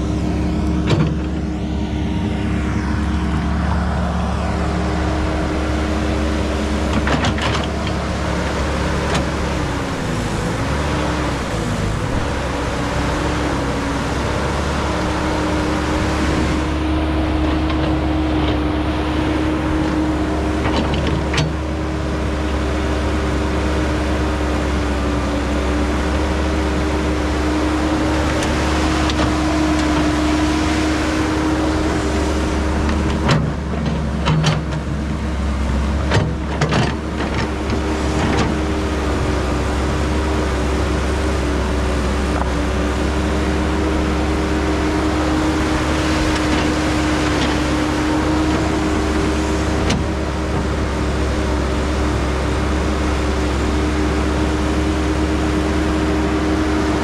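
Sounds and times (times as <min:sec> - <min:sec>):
excavator diesel engine: 0:00.0 - 0:57.0
hydraulic whine: 0:00.0 - 0:57.0.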